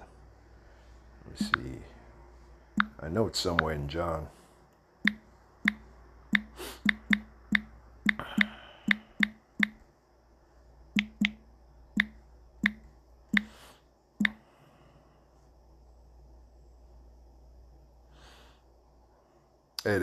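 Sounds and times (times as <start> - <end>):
touchscreen key taps: 1.4 - 1.7, 5.1 - 9.8.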